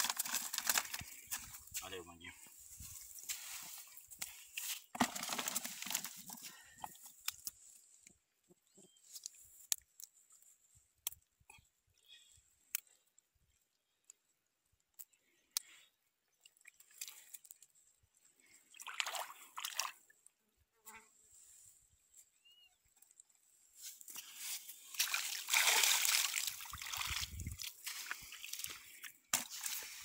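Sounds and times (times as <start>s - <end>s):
net rustling and scraping on sand: 2.6s - 6.4s, 23.7s - 25.4s, 27.2s - 30.0s.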